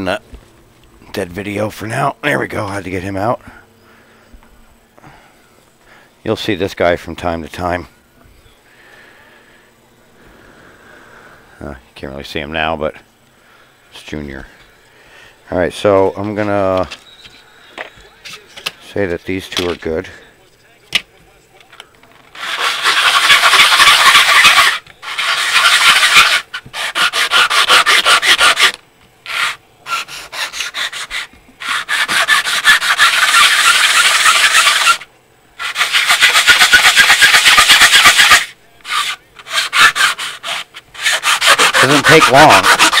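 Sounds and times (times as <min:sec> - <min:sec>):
plastic rubbed on sandpaper: 0:22.3 - 0:43.0.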